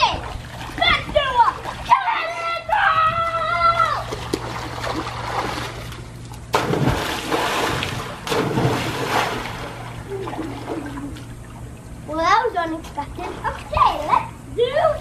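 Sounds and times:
water sloshing: 0:00.0 - 0:14.1
splash into pool: 0:06.5 - 0:11.0.

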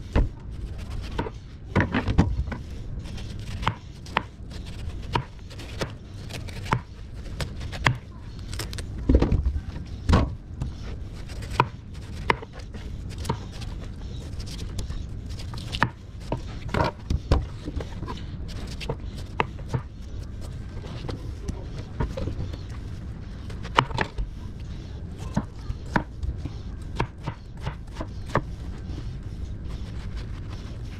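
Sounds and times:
knife slicing watermelon rind: 0:00.6 - 0:08.9, 0:10.8 - 0:20.5.

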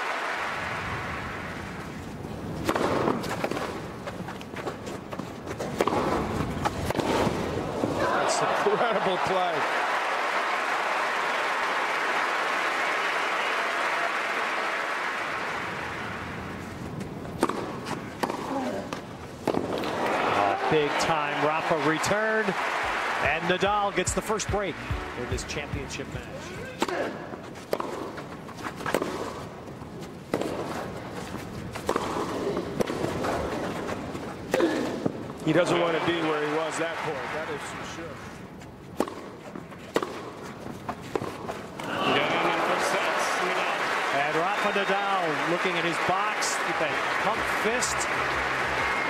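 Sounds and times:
crowd applauding: 0:00.0 - 0:01.8, 0:08.0 - 0:16.5, 0:19.8 - 0:26.6, 0:35.5 - 0:38.3, 0:41.9 - 0:49.0
racket hitting tennis ball: 0:02.6 - 0:03.8, 0:05.5 - 0:07.4, 0:17.4 - 0:19.9, 0:24.5 - 0:29.5, 0:30.2 - 0:33.9, 0:39.0 - 0:41.6.

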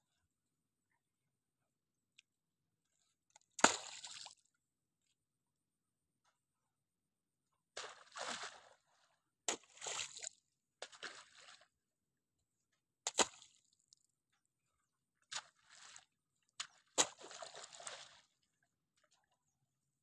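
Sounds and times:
wet mud squelching: 0:07.8 - 0:11.7, 0:13.1 - 0:13.6, 0:15.3 - 0:18.4
digging tool chopping into mud: 0:13.1 - 0:13.5, 0:16.6 - 0:18.0.

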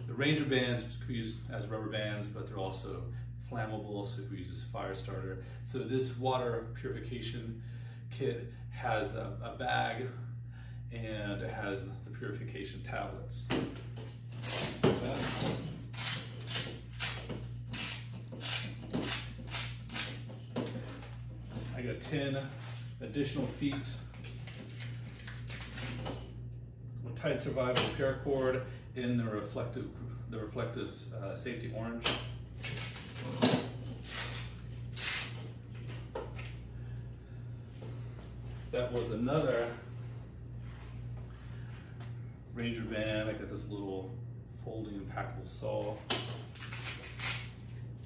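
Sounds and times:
velcro ripping open: 0:14.3 - 0:20.2, 0:32.6 - 0:35.4, 0:46.5 - 0:47.6.

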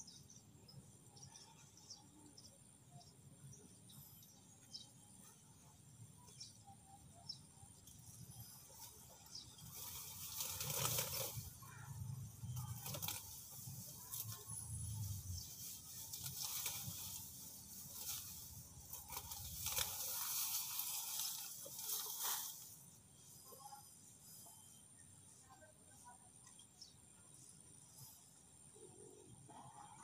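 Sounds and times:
rustling of leaves and stems: 0:07.8 - 0:24.4
grass being pulled up by hand: 0:08.7 - 0:22.8.

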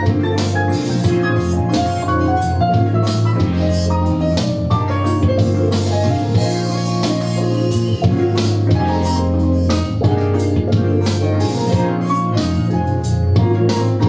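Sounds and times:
smooth jazz instrumental: 0:00.0 - 0:14.0.

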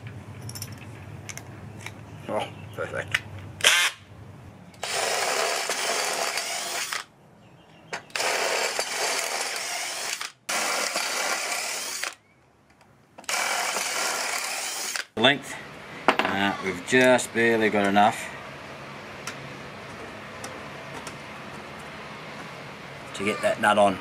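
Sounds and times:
cordless drill drilling metal: 0:04.8 - 0:07.1, 0:08.1 - 0:12.2, 0:13.2 - 0:15.1.

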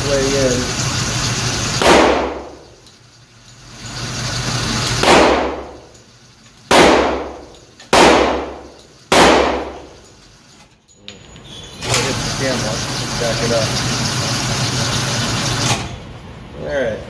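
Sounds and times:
pistol shots: 0:01.8 - 0:02.6, 0:05.0 - 0:05.8, 0:06.7 - 0:10.0.

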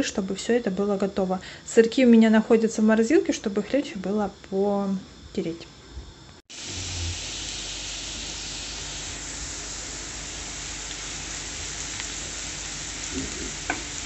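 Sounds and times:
vegetables sizzling in oil: 0:06.5 - 0:14.0.

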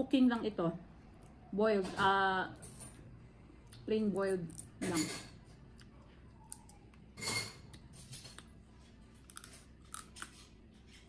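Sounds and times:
chewing: 0:05.5 - 0:10.6
crab shell crunching: 0:09.2 - 0:10.5.

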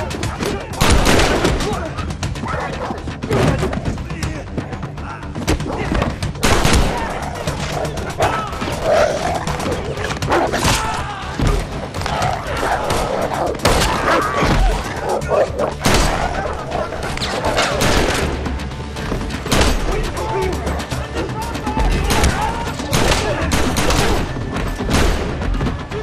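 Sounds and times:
film score music: 0:00.0 - 0:26.0
loud gunshots: 0:00.8 - 0:01.8, 0:06.4 - 0:07.5, 0:15.8 - 0:16.4, 0:17.6 - 0:18.4, 0:19.5 - 0:19.9, 0:22.0 - 0:25.4
men grunting: 0:06.9 - 0:17.8.

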